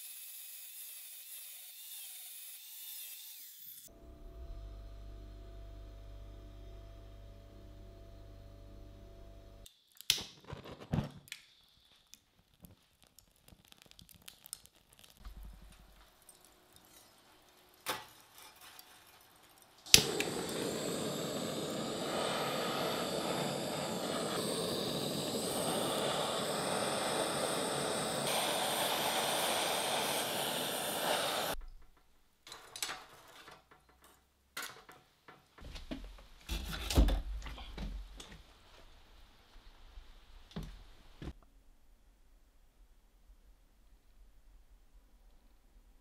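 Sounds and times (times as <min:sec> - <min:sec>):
blowtorch hissing: 0:19.9 - 0:31.6
blowtorch ignition click: 0:19.9 - 0:31.6.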